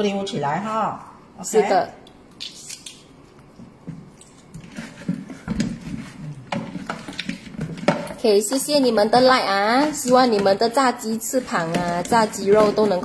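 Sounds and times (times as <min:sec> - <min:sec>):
wet squishes of raw meat: 0:02.0 - 0:05.0.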